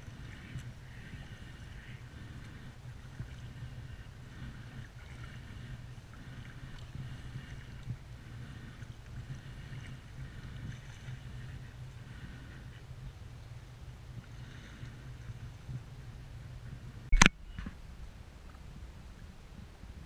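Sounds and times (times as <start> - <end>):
paddle strokes splashing in water: 0.0 - 13.4
steady low rumble: 0.0 - 20.0.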